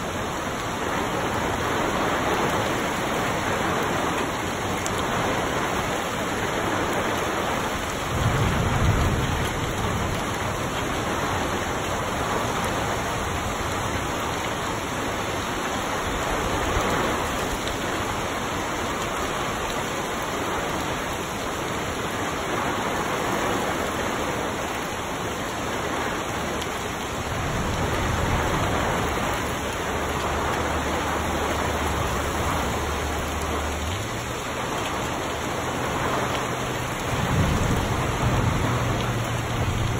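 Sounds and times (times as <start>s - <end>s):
heavy rain on trees: 0.0s - 39.9s
thunder rumbles: 6.6s - 14.3s, 26.1s - 39.9s.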